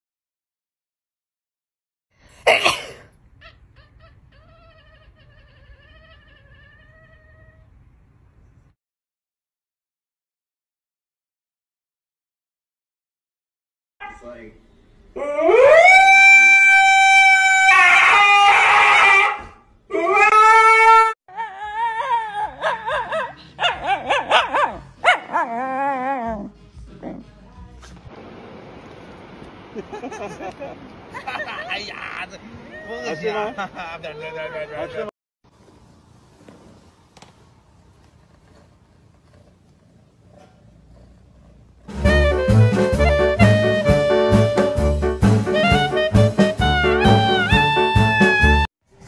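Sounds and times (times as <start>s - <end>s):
person sneezing: 2.4s - 3.1s
cat crying and yowling: 3.4s - 7.7s, 15.2s - 26.4s, 32.7s - 35.1s
dog whining and yelping: 3.4s - 7.7s, 17.8s - 26.5s.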